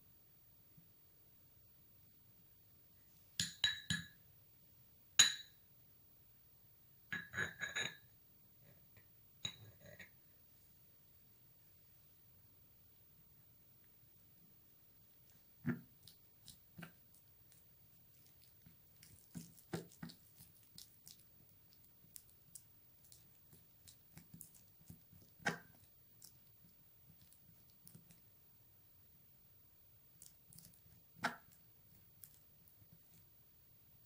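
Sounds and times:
spoon scraping sticky paste: 15.6s - 26.5s.

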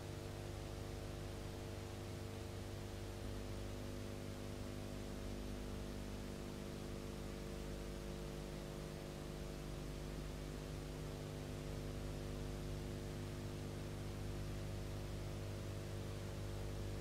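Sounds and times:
steady electrical hum: 0.0s - 17.0s.

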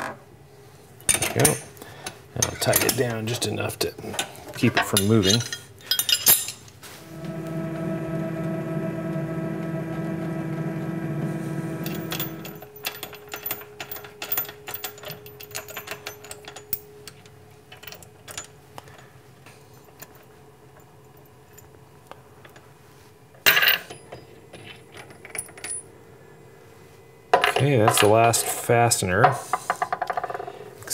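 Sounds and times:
steady pitched hum: 6.9s - 15.7s
metal clatter: 11.8s - 16.6s.

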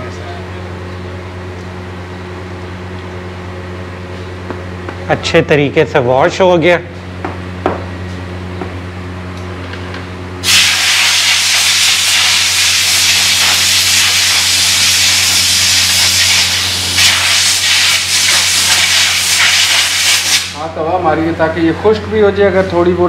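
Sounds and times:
steady low hum: 0.0s - 23.0s
compressed air hissing from blow gun: 10.4s - 20.6s.

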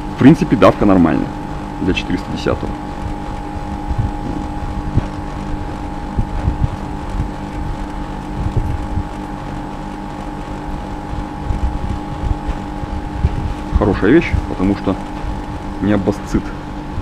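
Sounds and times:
air conditioner unit humming: 0.0s - 17.0s
high whine: 0.0s - 17.0s
low thumps: 1.3s - 9.2s, 11.0s - 15.8s.

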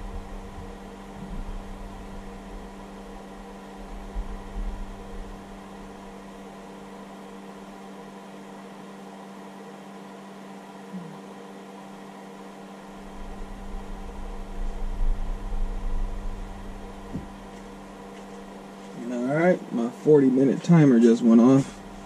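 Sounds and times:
low rumbling: 0.0s - 6.2s, 12.9s - 18.7s
charger cooling fan whirring: 0.0s - 22.0s.

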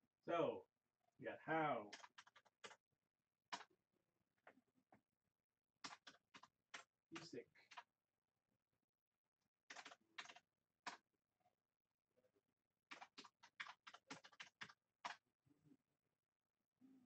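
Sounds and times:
faint keyboard typing: 1.9s - 2.8s, 3.5s - 3.7s, 5.8s - 7.9s, 9.7s - 11.0s, 12.9s - 15.2s.

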